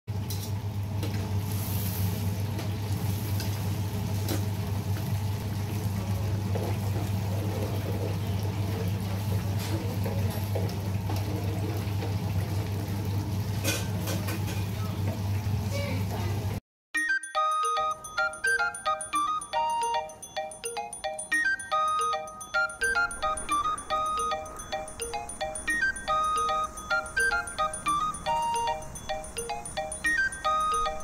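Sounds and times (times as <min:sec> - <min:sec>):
chicken sizzling in deep fryer: 0:00.1 - 0:16.6.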